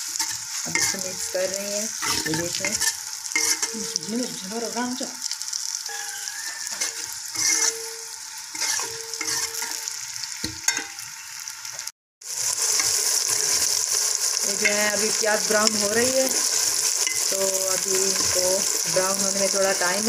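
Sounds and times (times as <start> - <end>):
ladle stirring and scraping: 0.0 - 4.1, 6.4 - 11.1, 12.4 - 19.2
onions sizzling in a pot: 0.0 - 20.0.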